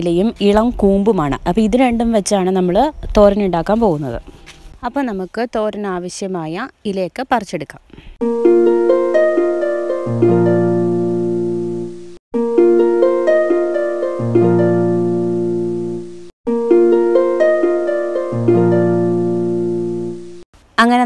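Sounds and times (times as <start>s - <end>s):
plucked-string melody: 8.2s - 20.4s.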